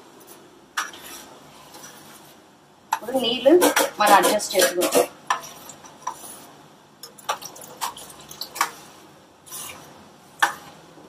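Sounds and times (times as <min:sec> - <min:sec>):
ladle stirring liquid in pot: 0:03.6 - 0:10.7.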